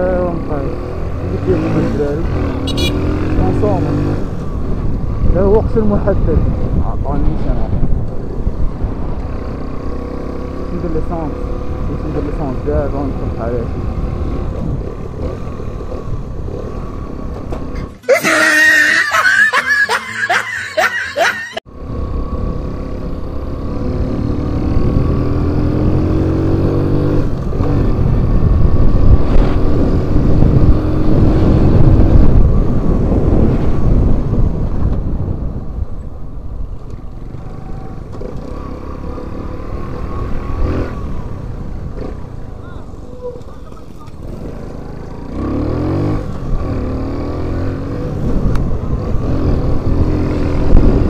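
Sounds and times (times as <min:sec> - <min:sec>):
wind rumble: 0:02.2 - 0:10.6, 0:21.7 - 0:51.0
burst of laughter: 0:18.1 - 0:21.6
motorbike engine accelerating: 0:21.7 - 0:35.4, 0:36.9 - 0:51.0.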